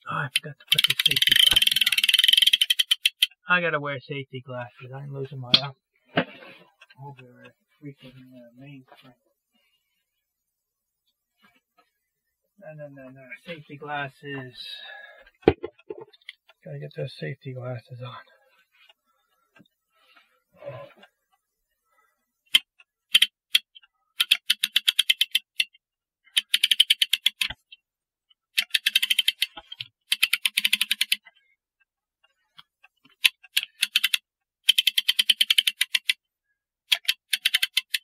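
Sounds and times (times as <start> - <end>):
ratchet clicking: 0.6 - 3.4, 22.5 - 27.6, 28.6 - 31.3, 33.2 - 36.2, 36.9 - 38.0.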